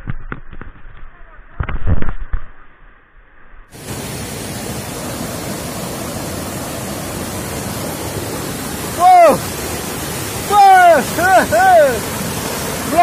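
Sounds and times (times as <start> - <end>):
river rapids rushing over boulders: 3.8 - 13.0.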